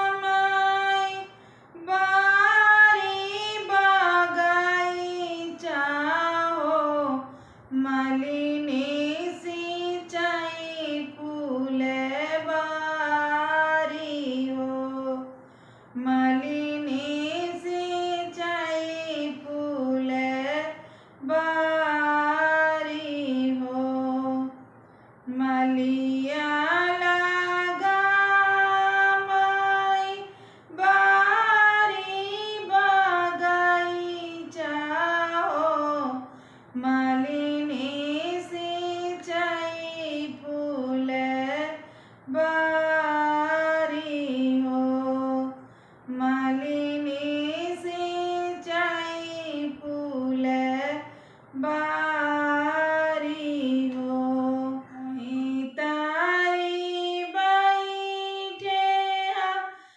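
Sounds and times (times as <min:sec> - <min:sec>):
woman singing unaccompanied: 0:00.0 - 0:59.9
breaths: 0:01.3 - 0:01.8, 0:07.2 - 0:07.8, 0:15.4 - 0:16.0, 0:20.8 - 0:21.2, 0:24.6 - 0:25.3, 0:30.3 - 0:30.8, 0:36.2 - 0:36.8, 0:41.8 - 0:42.3, 0:45.6 - 0:46.1, 0:51.0 - 0:51.6, 0:59.7 - 0:59.9.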